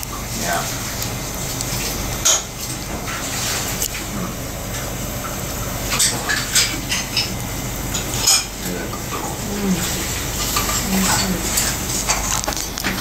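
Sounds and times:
steady low hum: 0.0 - 13.0
tableware clinking: 5.9 - 9.3.

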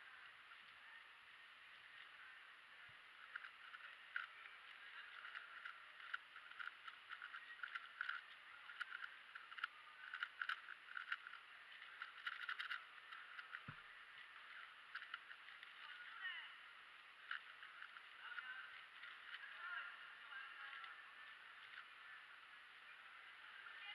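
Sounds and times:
puzzle cube clicking and rattling: 3.2 - 15.9, 17.2 - 19.5.

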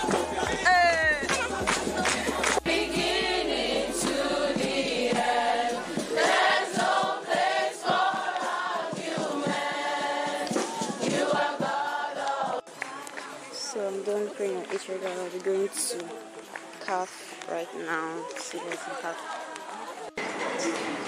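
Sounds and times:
hands clapping along: 0.0 - 13.4, 14.4 - 17.5
crowd singing worship song: 1.3 - 13.6.

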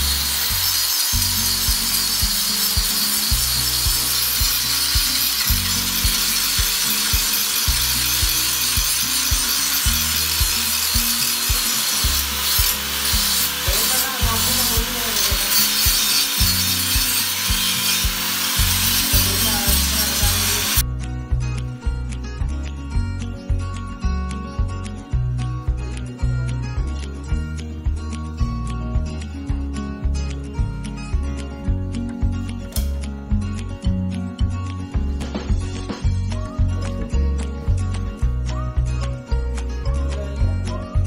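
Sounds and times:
angle grinder cutting metal: 0.0 - 20.8
music with bass beat: 0.0 - 41.0.

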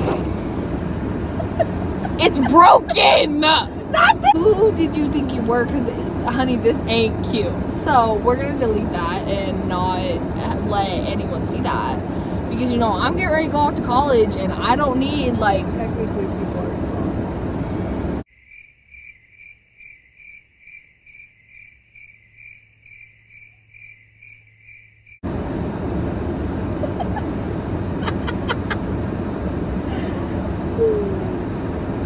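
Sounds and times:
car interior rumble: 0.0 - 18.2, 25.2 - 32.0
cricket chirping: 18.3 - 25.2.

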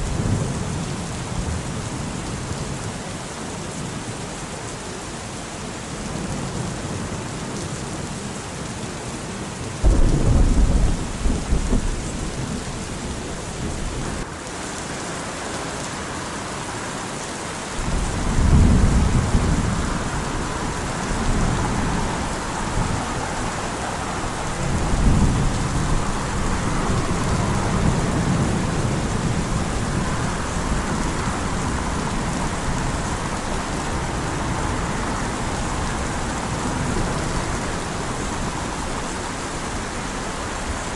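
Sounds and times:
heavy rain: 0.0 - 40.9
rolling thunder: 9.8 - 14.2, 17.8 - 37.4.

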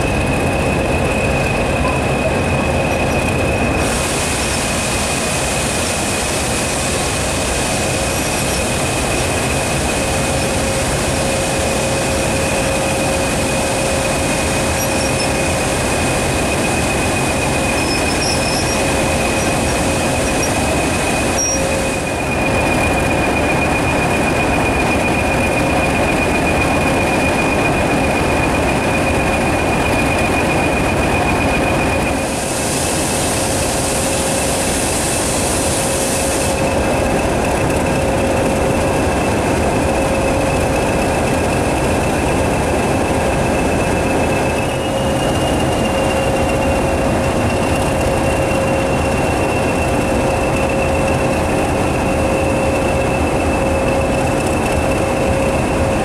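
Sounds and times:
diesel locomotive engine: 0.0 - 56.0
steady high whistle: 43.4 - 51.4.

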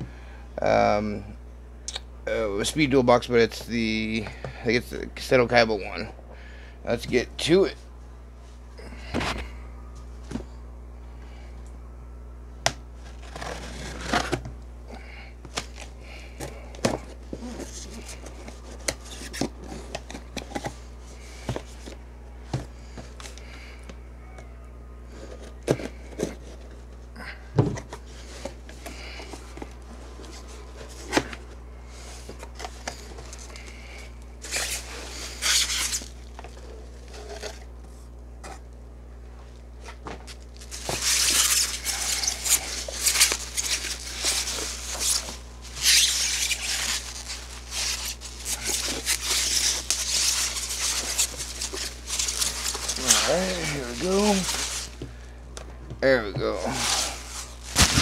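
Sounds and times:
plastic wrap crinkling and tearing: 34.4 - 37.6, 40.3 - 55.0, 56.6 - 58.0.

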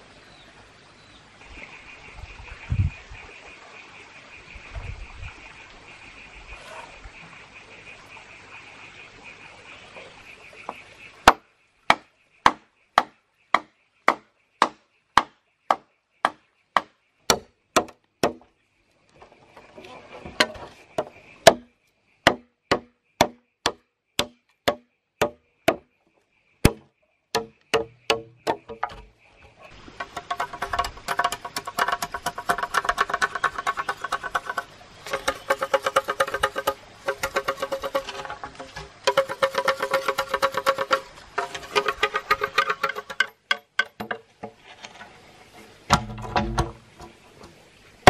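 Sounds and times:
knife chopping bamboo: 11.3 - 18.4, 21.4 - 21.7, 22.3 - 25.9, 26.6 - 29.1, 30.0 - 44.2.

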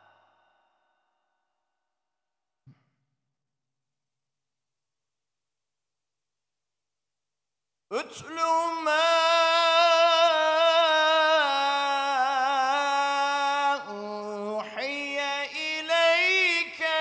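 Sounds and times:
man reciting melodically: 7.9 - 17.0.

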